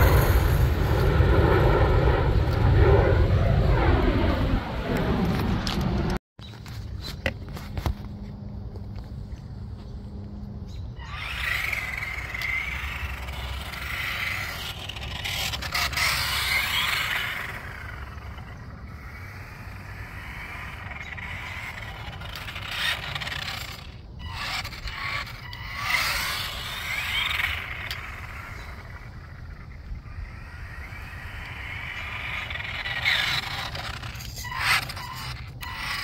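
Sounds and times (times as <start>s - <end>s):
toy truck electric motor whining: 11.0s - 36.0s
tyres scraping over plastic tiles: 31.6s - 36.0s.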